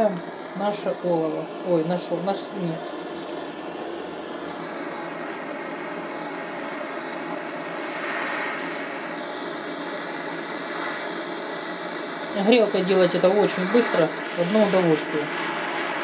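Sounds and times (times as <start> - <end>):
gas torch hissing: 0.0 - 16.0.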